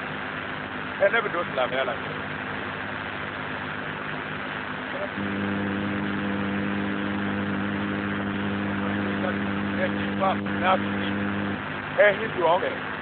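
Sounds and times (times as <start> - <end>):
low droning hum: 5.2 - 12.0.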